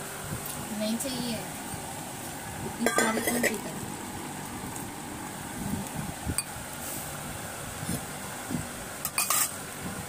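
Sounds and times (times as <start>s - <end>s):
fan humming: 0.0s - 10.0s
faint tableware clinks: 2.8s - 3.6s, 9.1s - 9.6s.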